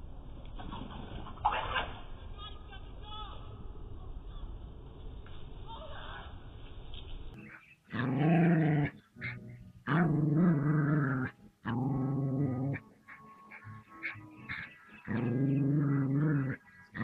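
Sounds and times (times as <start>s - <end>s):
dog growling: 7.4s - 17.0s.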